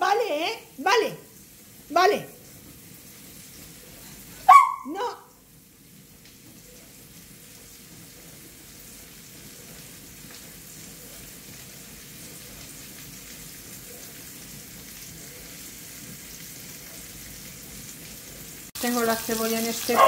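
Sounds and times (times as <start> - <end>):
onion sizzling in oil: 0.0 - 20.0.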